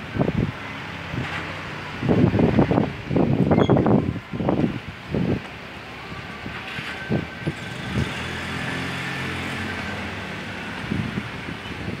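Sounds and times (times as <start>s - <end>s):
wind buffeting microphone: 0.0s - 12.0s
vehicle engine passing: 6.8s - 12.0s.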